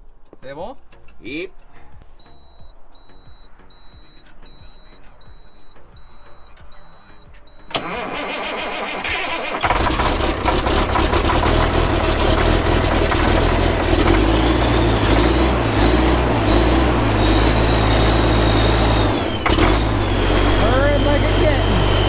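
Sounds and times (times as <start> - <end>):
diesel truck starter cranking: 2.2 - 22.0
diesel engine idling: 2.4 - 22.0.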